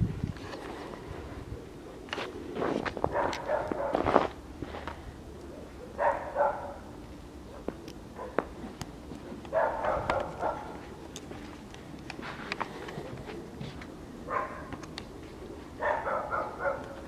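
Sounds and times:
puppy barking: 3.1 - 4.1, 5.8 - 6.9, 7.5 - 8.5, 9.5 - 10.8, 14.3 - 14.8, 15.8 - 17.0.

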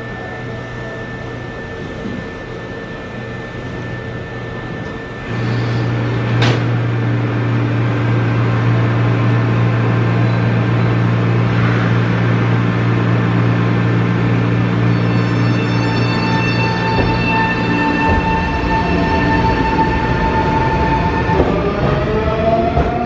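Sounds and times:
electric train equipment humming: 0.0 - 23.0.

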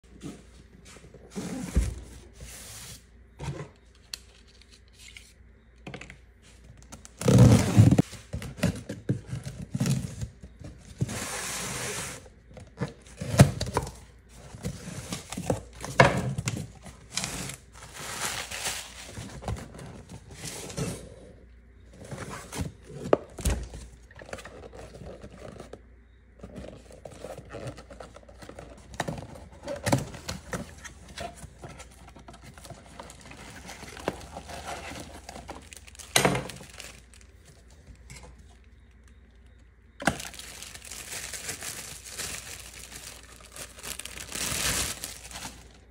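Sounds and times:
plastic packaging rustling: 7.0 - 21.0, 26.4 - 45.9
cardboard tearing and scraping: 7.2 - 10.1, 40.0 - 45.8.

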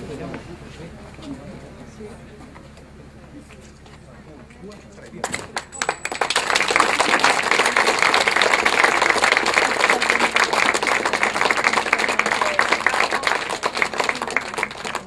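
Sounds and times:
crowd applauding: 5.5 - 15.0.

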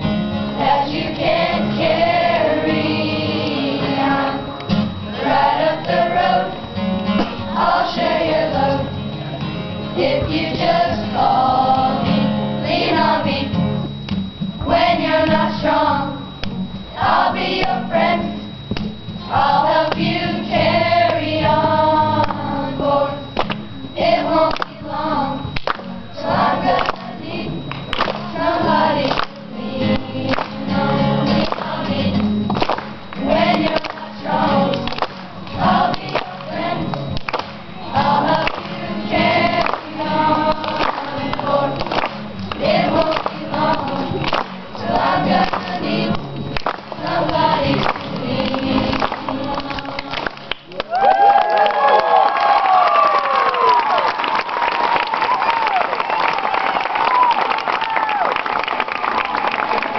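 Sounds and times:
strummed acoustic guitar: 0.0 - 50.5
children's choir singing: 0.5 - 13.8, 14.6 - 18.6, 19.2 - 50.8.

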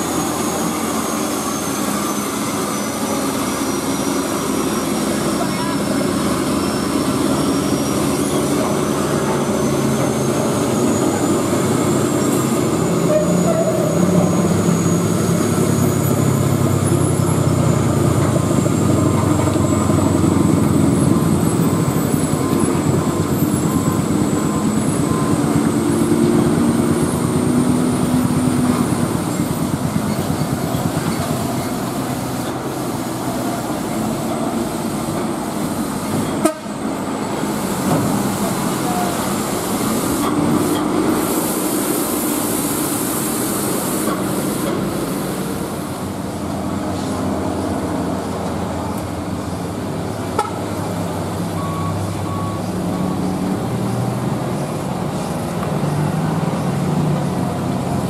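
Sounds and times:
truck diesel engine running: 0.0 - 58.0.

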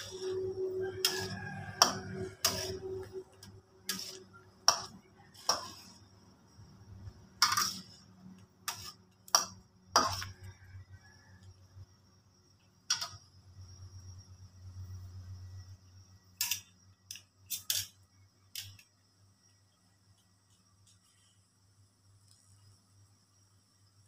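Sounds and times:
metal spatula clacking on wok: 3.9 - 5.9, 7.4 - 7.9.

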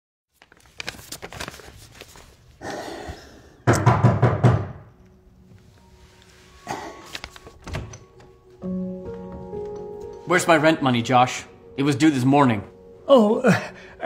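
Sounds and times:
banknotes rustling: 0.3 - 2.6, 6.0 - 8.2
hard knocks on a door: 3.7 - 4.8.

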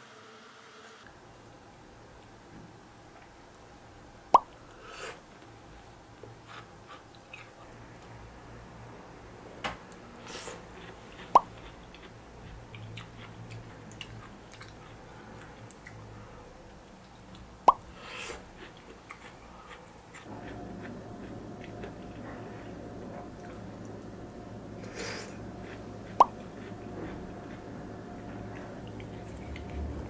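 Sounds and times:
faint eating sounds: 4.4 - 7.8, 9.9 - 30.0
steady low hum: 7.6 - 30.0.

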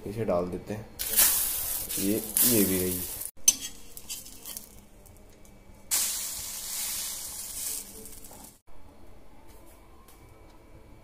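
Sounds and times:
bread sizzling on a pan: 1.0 - 3.4, 5.9 - 8.6.

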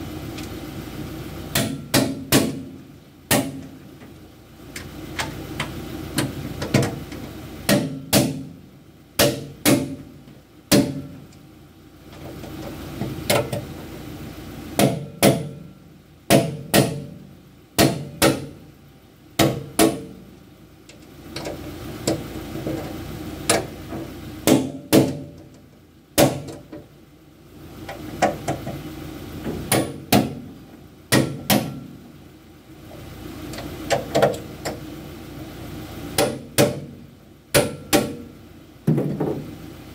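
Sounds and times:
hammer striking steel: 1.5 - 2.7, 3.3 - 3.6, 7.7 - 8.5, 9.2 - 10.0, 14.8 - 15.6, 16.3 - 17.1, 17.8 - 18.5, 19.4 - 20.2, 29.7 - 30.4, 31.1 - 31.9, 36.2 - 36.9, 37.5 - 38.2.

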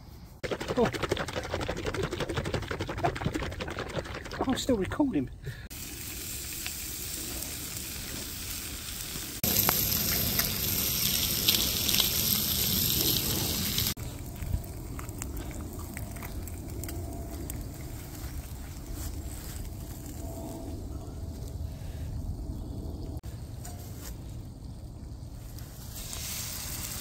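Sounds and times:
bacon sizzling in frying pans: 5.7 - 15.2, 25.9 - 27.0.

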